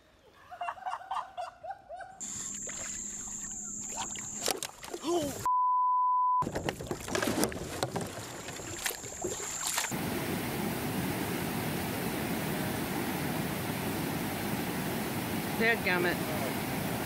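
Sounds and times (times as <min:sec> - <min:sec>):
floodwater rushing: 0:02.2 - 0:05.5, 0:06.4 - 0:17.0
kayak clicks and knocks: 0:03.9 - 0:05.0, 0:06.4 - 0:09.9.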